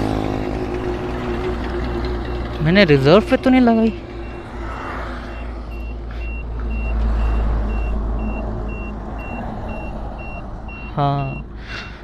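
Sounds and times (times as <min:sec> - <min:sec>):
low rumble of road traffic: 0:00.0 - 0:12.0.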